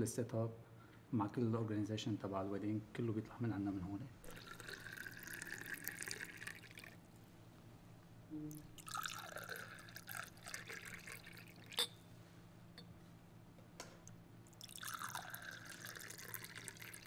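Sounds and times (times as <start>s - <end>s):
liquid pouring into glasses: 4.2s - 7.0s, 8.5s - 12.0s, 14.4s - 17.0s
glass clink: 11.6s - 12.1s.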